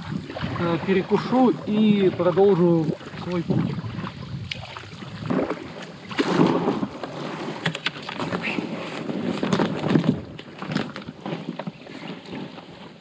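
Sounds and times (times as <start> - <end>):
water splashing: 0.0 - 13.0.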